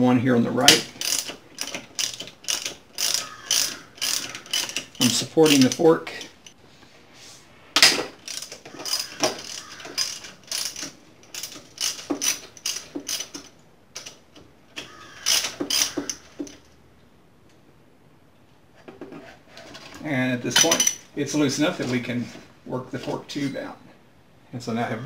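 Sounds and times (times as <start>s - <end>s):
socket ratchet clicking: 0.7s - 6.6s, 8.2s - 14.2s, 14.8s - 16.6s.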